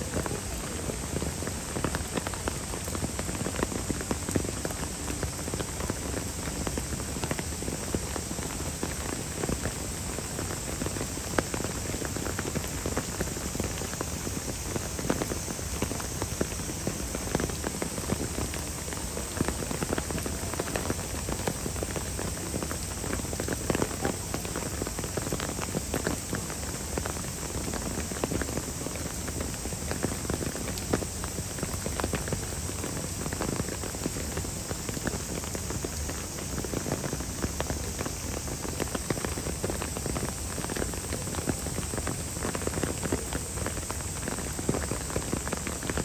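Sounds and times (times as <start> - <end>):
steady rain patter: 0.0 - 46.0.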